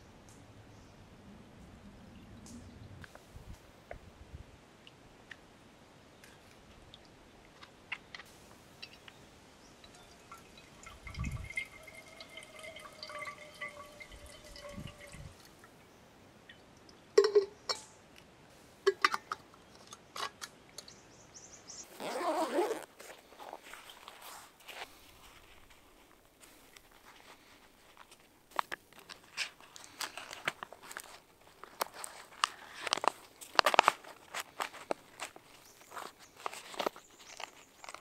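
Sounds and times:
water trickling into a metal mug: 0:08.7 - 0:15.8.

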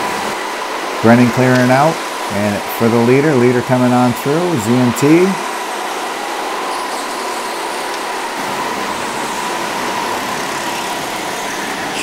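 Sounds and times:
faint continuous whine: 0:00.0 - 0:12.0
go-karts droning: 0:06.1 - 0:12.0.

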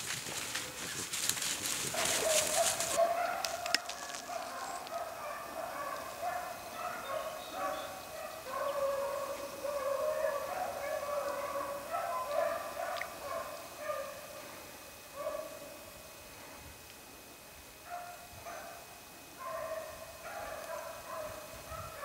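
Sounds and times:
hounds baying: 0:00.2 - 0:15.8, 0:17.9 - 0:22.0.

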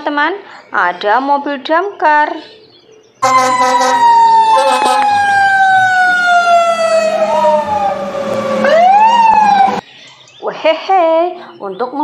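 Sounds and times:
fire engine siren winding down: 0:03.2 - 0:09.8
second siren wailing: 0:03.2 - 0:09.8.

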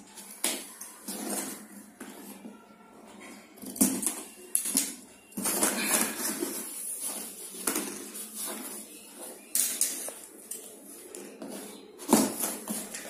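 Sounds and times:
plastic straps scraping and rustling: 0:03.4 - 0:13.0.

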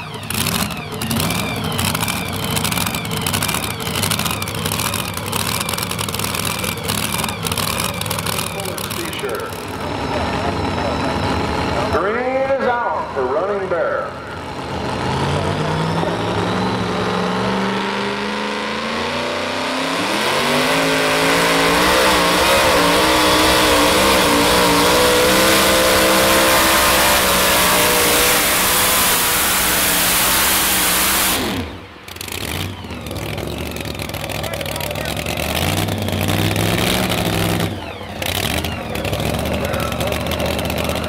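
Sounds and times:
truck engine revving under load: 0:00.0 - 0:41.0.

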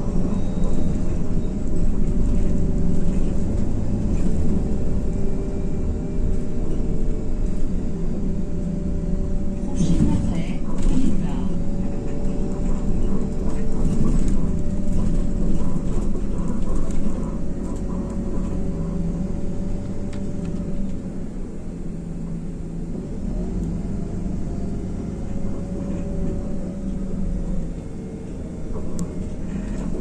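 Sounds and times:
bus diesel engine running: 0:00.0 - 0:30.0
road noise and rumble: 0:00.0 - 0:30.0.

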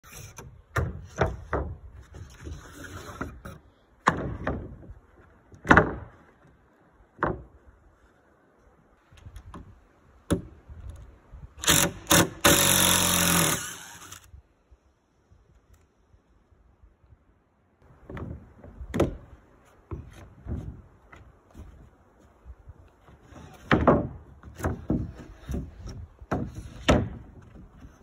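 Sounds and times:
cordless drill driving screw: 0:11.6 - 0:14.3.

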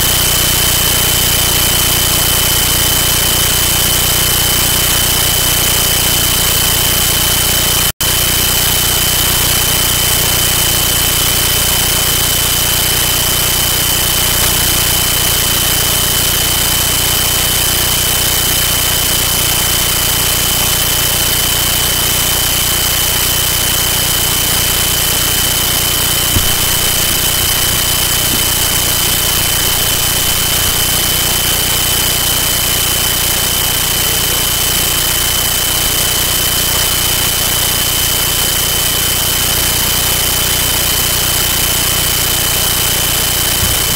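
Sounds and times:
thin high whine: 0:00.0 - 0:43.9
static hiss: 0:25.2 - 0:37.8.

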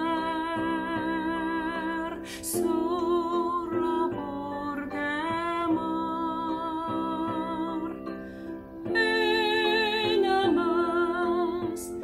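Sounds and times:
instrumental accompaniment: 0:00.0 - 0:12.0
woman singing a ballad: 0:00.0 - 0:12.0.

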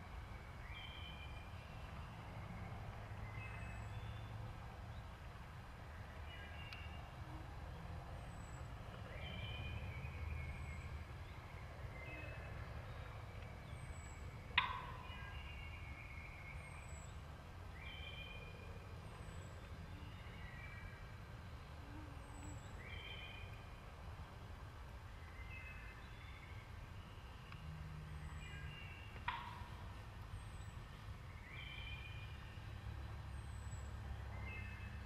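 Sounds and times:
woodland birds singing: 0:00.0 - 0:35.0.

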